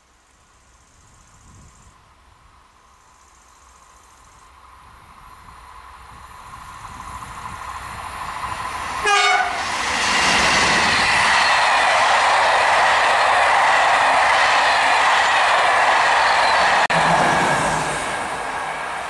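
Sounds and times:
rail and wheel noise: 0.1 - 19.0
train approaching: 2.7 - 19.0
train horn blast: 9.0 - 9.7.

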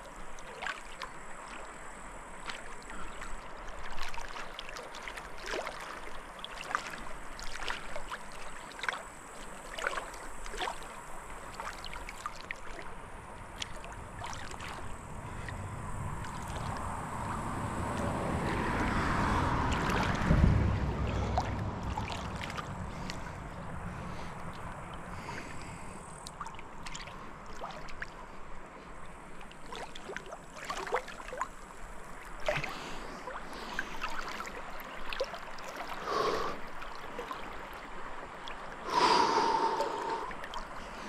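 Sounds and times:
river water splashing: 0.0 - 41.0
rush of water: 0.0 - 41.0
low thump: 20.2 - 21.5.

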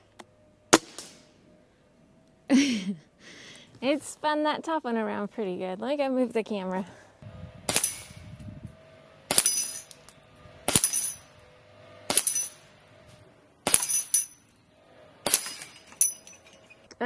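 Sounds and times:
air rifle shots cracking: 7.6 - 8.2, 15.2 - 15.7
metallic clang of steel target: 7.7 - 8.3, 9.3 - 12.7, 13.6 - 14.5, 15.2 - 16.8
steel target ringing: 7.7 - 8.3, 9.3 - 10.1, 10.7 - 11.4, 12.0 - 12.7, 13.6 - 14.5, 15.2 - 16.8.

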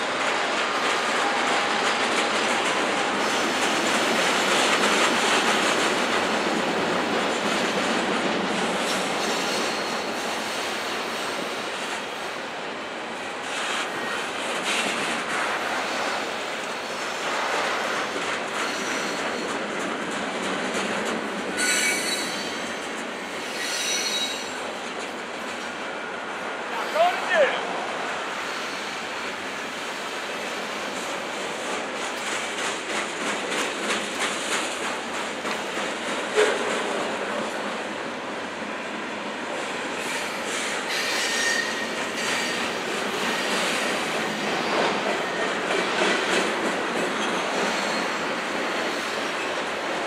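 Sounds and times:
rail clacks: 0.0 - 50.0
train wheels rushing on rail: 0.0 - 50.0
wheel squeals: 21.6 - 22.8, 23.4 - 24.6.

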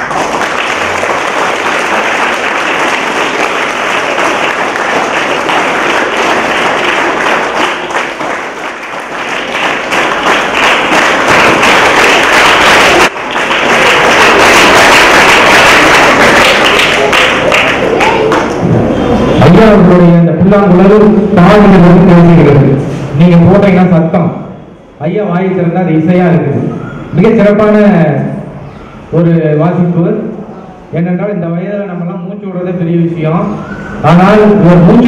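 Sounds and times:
audience applauding: 0.0 - 18.6.

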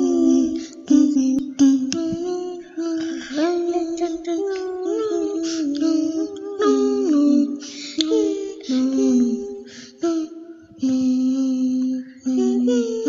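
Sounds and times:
breathy hisses: 0.0 - 0.9, 5.4 - 5.8, 7.5 - 10.4
person singing in high voice: 0.0 - 13.0.

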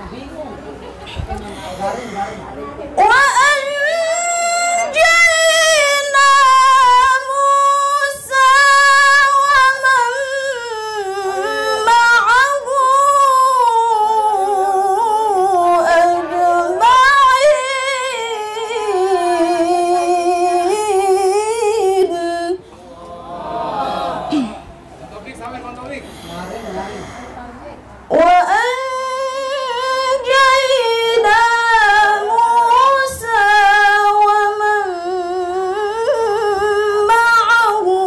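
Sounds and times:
woman chanting melodically: 0.0 - 24.6, 26.6 - 38.0.

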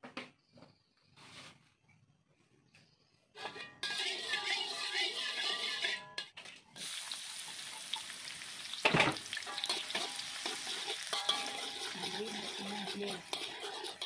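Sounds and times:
metal spatula scraping wok: 3.4 - 6.5, 8.9 - 14.0
shallots sizzling in hot oil: 6.8 - 14.0.

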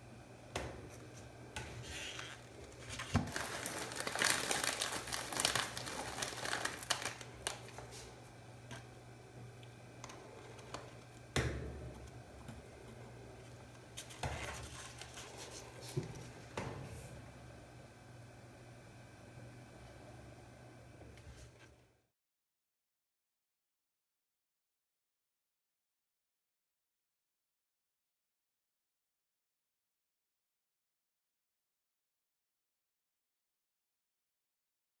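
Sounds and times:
steady low hum: 0.0 - 22.1
paper cup crinkling and rustling: 1.7 - 8.9, 13.5 - 16.6.

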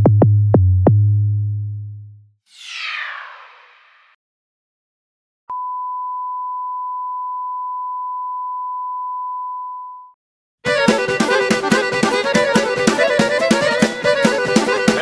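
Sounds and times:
music with a regular beat: 10.7 - 15.0.

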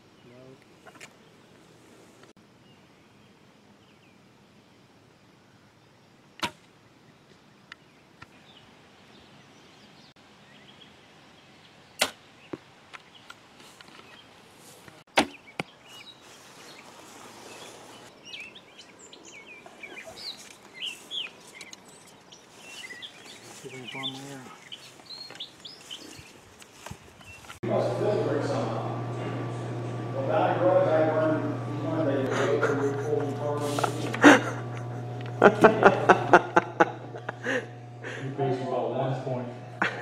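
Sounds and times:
birds chirping: 0.0 - 4.6, 5.4 - 40.0
brush rustling: 13.4 - 15.1, 15.8 - 18.2, 19.7 - 27.6, 32.8 - 36.1.

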